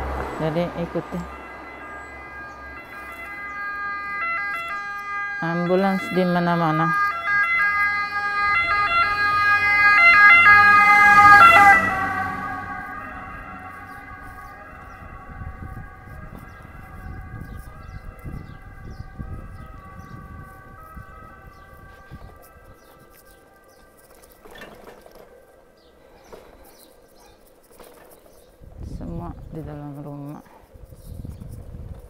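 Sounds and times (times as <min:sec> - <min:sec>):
ambulance siren two-tone: 0:00.0 - 0:25.0.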